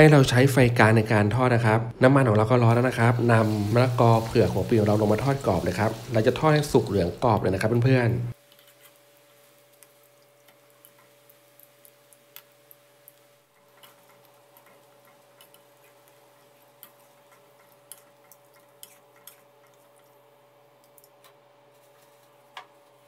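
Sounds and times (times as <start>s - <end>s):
hot oil crackling and popping: 2.5s - 23.0s.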